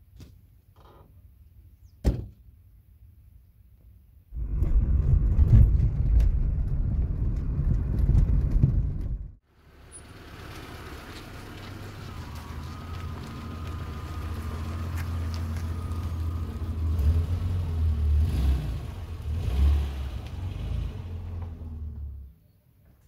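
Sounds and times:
knocks from the road: 2.0 - 2.4
car driving rumble: 4.4 - 22.4.

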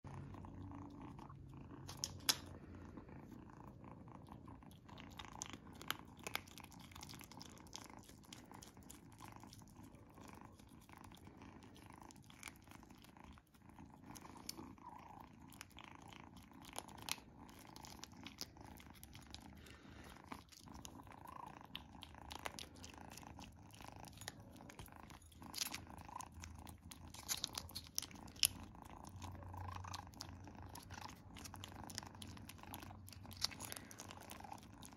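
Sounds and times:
low steady purr: 0.0 - 34.9
kitten lapping with wet smacking: 15.5 - 34.9.

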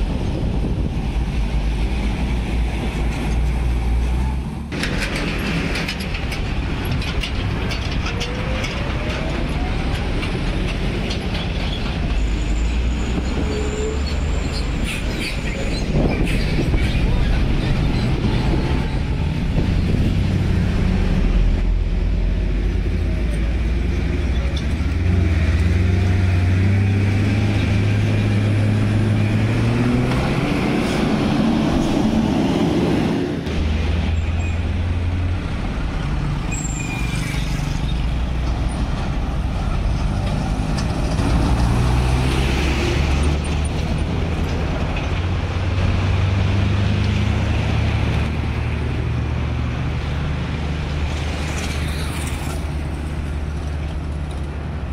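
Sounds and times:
cars driving past: 24.7 - 54.9.

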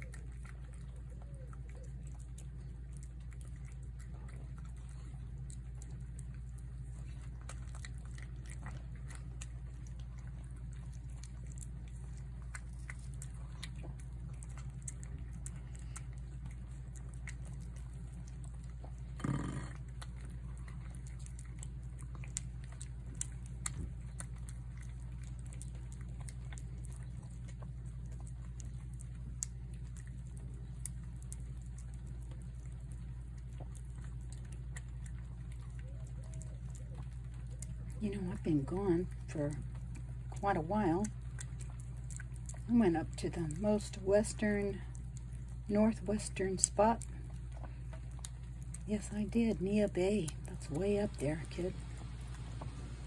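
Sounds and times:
cat chewing and lapping food: 0.0 - 53.0
low steady hum: 0.0 - 53.0.

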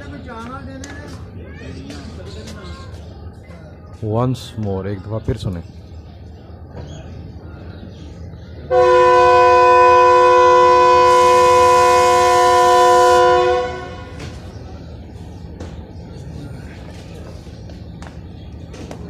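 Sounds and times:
locomotive air horn blast: 8.7 - 14.3.

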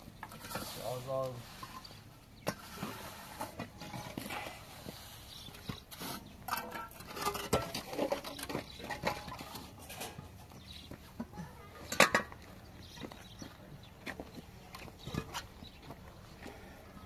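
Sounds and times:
trowel scraping wet mortar: 2.4 - 9.0.

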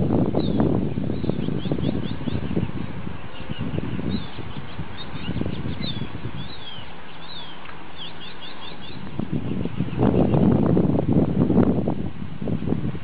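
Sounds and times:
low steady rumble: 0.0 - 13.0
small birds chirping: 0.3 - 10.6.

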